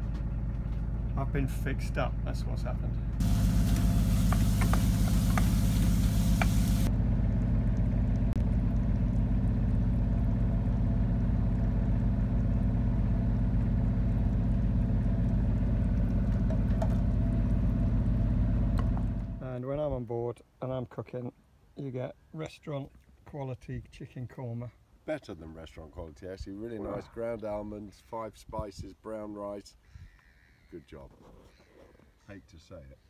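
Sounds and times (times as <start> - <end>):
diesel engine low hum: 0.0 - 19.6
pan sizzling: 3.2 - 6.9.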